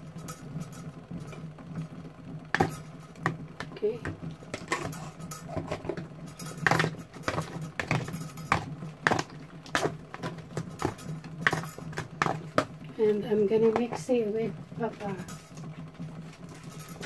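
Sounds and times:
metal spoon scraping plastic tray: 4.0s - 12.7s.

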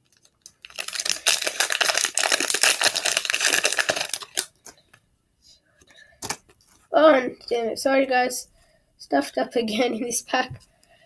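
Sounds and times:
foil wrapper crinkling and tearing: 0.0s - 4.8s.

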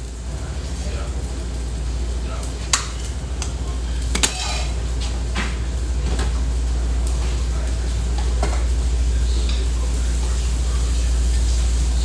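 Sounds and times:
steady low hum: 0.0s - 12.0s
utensils and dishes clinking: 4.0s - 6.4s.

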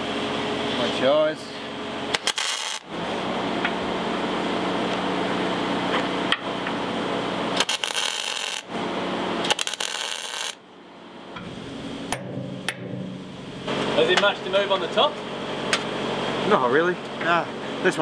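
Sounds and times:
welder crackling sizzle: 2.1s - 2.9s, 7.5s - 8.7s, 9.4s - 10.6s.

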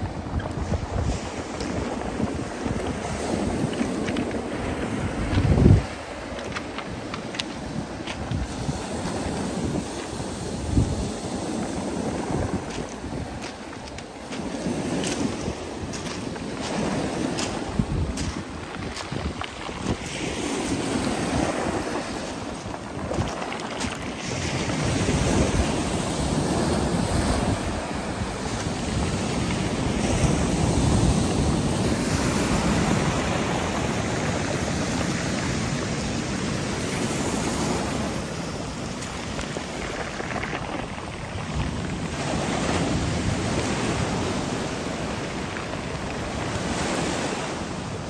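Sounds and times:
surf breaking on pebble beach: 0.0s - 48.0s.

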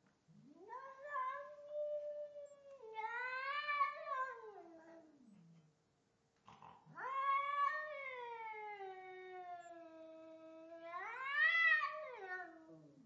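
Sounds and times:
cat yowling: 6.9s - 13.0s.

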